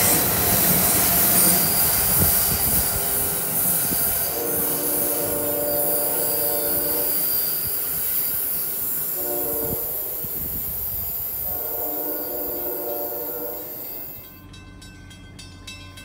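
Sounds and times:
moving train hiss: 0:00.0 - 0:15.5
train horn blasts: 0:04.0 - 0:07.8, 0:08.9 - 0:10.7, 0:11.3 - 0:14.2.

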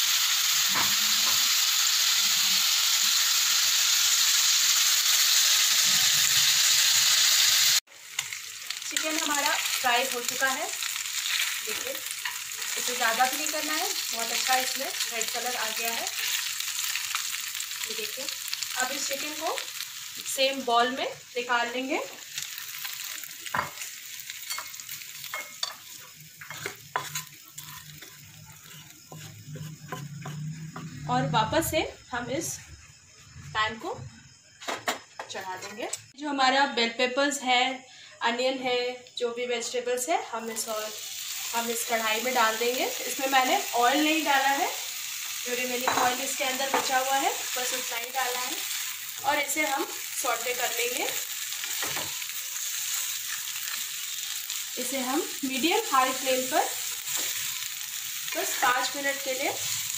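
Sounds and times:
chicken sizzling in oil: 0:00.0 - 0:31.4, 0:40.3 - 0:59.9
spatula scraping and knocking: 0:26.4 - 0:31.1.

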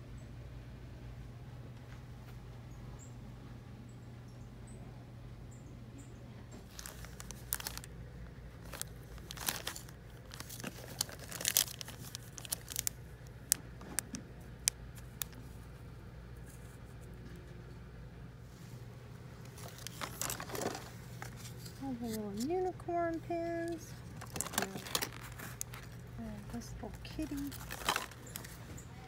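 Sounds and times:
steady low hum: 0:00.0 - 0:29.0
plastic packaging crinkling: 0:06.7 - 0:15.7, 0:19.5 - 0:22.5, 0:23.4 - 0:28.7.

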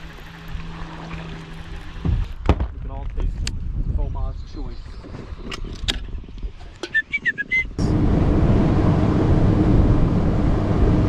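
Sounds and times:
outboard engine running: 0:00.0 - 0:02.3, 0:07.8 - 0:11.0.

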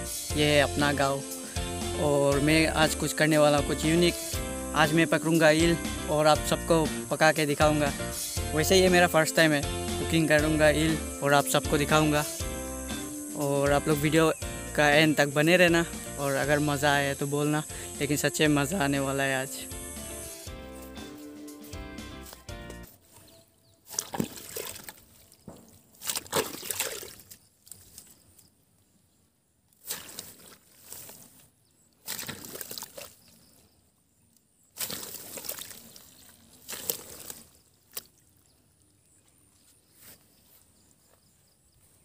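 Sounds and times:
hoe chopping into wet mud: 0:23.9 - 0:27.2, 0:29.8 - 0:31.1, 0:32.0 - 0:33.1, 0:34.8 - 0:35.8, 0:36.7 - 0:38.0.

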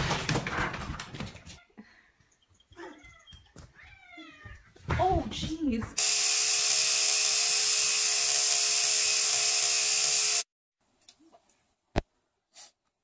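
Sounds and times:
electric toothbrush buzzing: 0:06.0 - 0:10.5.

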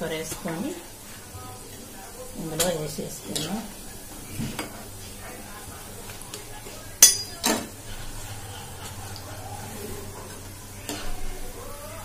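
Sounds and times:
food sizzling in hot oil: 0:00.0 - 0:12.0
metal spoon clinking: 0:07.0 - 0:07.7.

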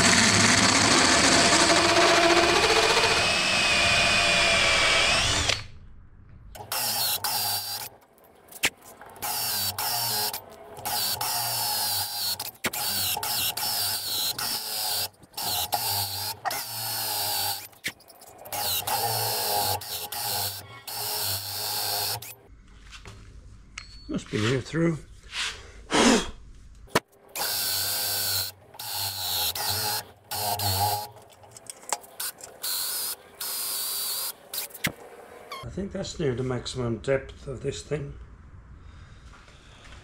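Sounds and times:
drill with hole saw cutting wood: 0:00.0 - 0:05.7, 0:06.6 - 0:08.0, 0:09.2 - 0:22.4, 0:27.3 - 0:31.2, 0:32.0 - 0:35.6.

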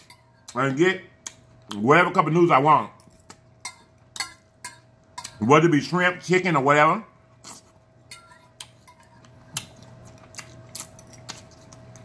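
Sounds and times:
faint steady hum: 0:00.0 - 0:12.0
fork clinking on ceramic plate: 0:03.0 - 0:05.4, 0:08.1 - 0:09.3.

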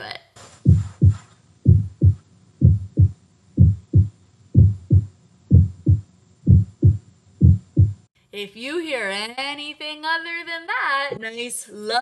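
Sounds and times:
heartbeat lub-dub: 0:00.6 - 0:08.1.

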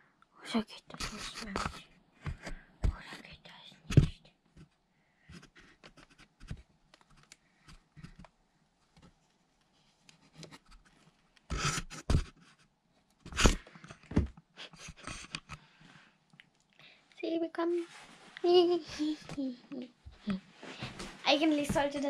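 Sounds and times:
cardboard rubbing and scraping: 0:11.5 - 0:12.6.

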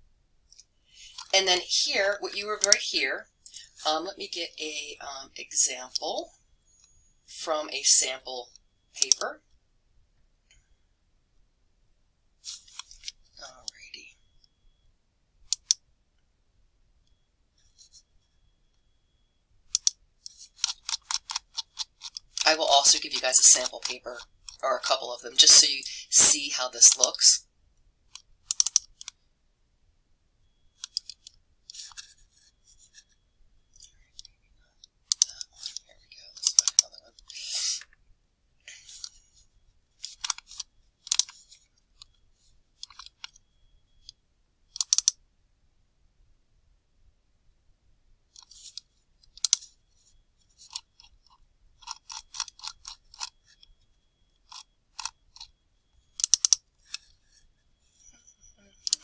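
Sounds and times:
mouse and keyboard clicks: 0:15.5 - 0:15.8, 0:19.7 - 0:22.4, 0:28.1 - 0:29.2, 0:30.8 - 0:32.1, 0:35.1 - 0:35.8, 0:36.4 - 0:37.3, 0:40.0 - 0:42.1, 0:44.0 - 0:45.2, 0:48.3 - 0:49.7, 0:50.6 - 0:53.6, 0:54.4 - 0:55.5, 0:56.1 - 0:57.2, 0:58.8 - 0:59.0.

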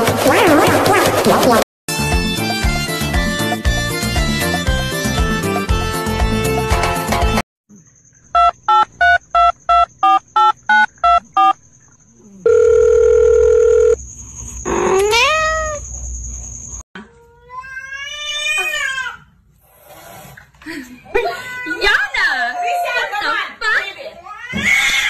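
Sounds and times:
music: 0:01.9 - 0:07.4
long steady beep: 0:08.3 - 0:11.6, 0:12.5 - 0:14.0
telephone keypad tones: 0:08.4 - 0:11.5, 0:12.5 - 0:14.0
cat meowing: 0:14.9 - 0:15.8.

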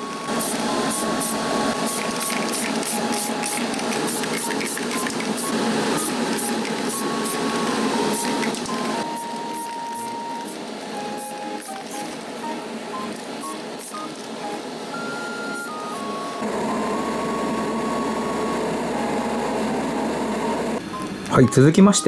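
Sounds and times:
spray paint can hissing: 0:00.3 - 0:12.4, 0:13.1 - 0:14.4.

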